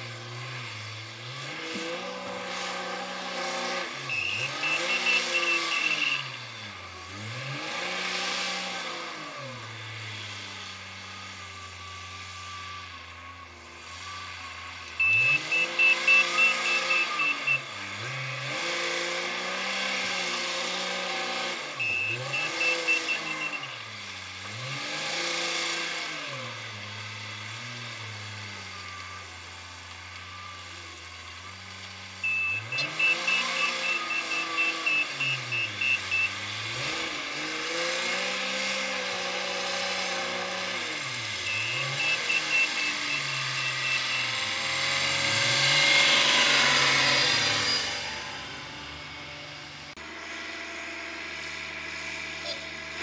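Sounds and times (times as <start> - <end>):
diesel engine revving: 0.0 - 53.0
reversing alarm beeps: 4.1 - 6.5, 15.0 - 17.8, 21.8 - 23.8, 32.2 - 37.0, 40.7 - 47.9.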